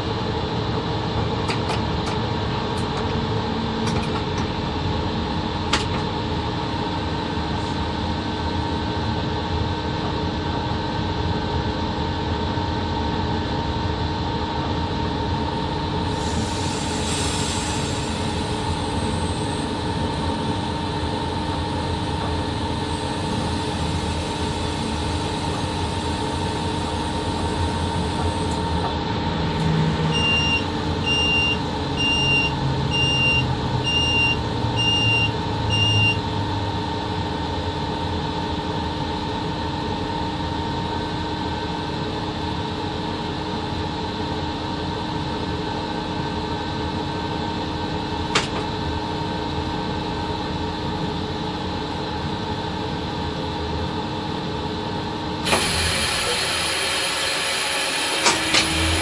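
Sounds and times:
locomotive cab hum: 0:00.0 - 0:12.2, 0:15.9 - 0:36.4.

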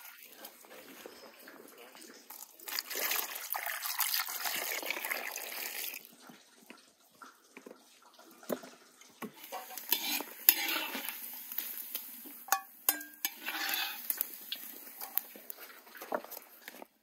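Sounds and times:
food sizzling: 0:02.3 - 0:06.1, 0:09.2 - 0:17.0
metal spoon scraping pot: 0:09.4 - 0:11.7, 0:12.4 - 0:15.3.

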